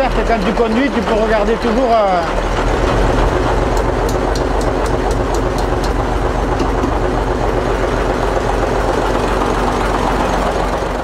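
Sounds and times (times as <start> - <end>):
valve gear ticking: 0.0 - 8.7
diesel engine idling: 0.0 - 11.0.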